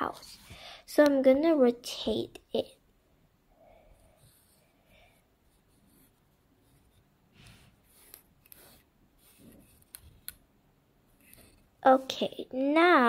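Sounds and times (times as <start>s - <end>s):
plastic model rubbing on cloth: 5.4s - 10.2s.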